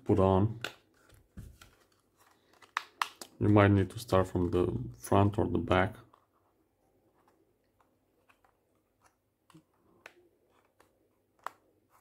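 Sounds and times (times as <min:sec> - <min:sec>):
rubber grip clicking and rubbing: 0:07.1 - 0:12.0.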